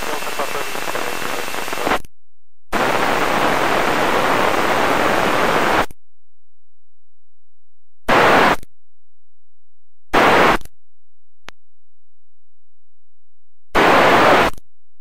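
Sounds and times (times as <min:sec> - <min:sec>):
radio static hiss: 0:00.0 - 0:02.0, 0:02.8 - 0:05.9, 0:08.1 - 0:08.6, 0:10.2 - 0:10.6, 0:13.8 - 0:14.6.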